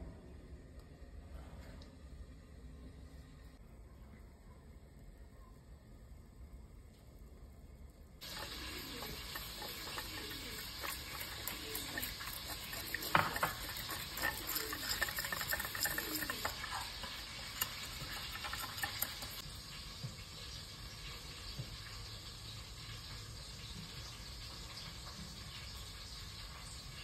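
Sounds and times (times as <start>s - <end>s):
whisk scraping a saucepan: 8.2s - 19.5s
butter sizzling: 8.2s - 27.0s.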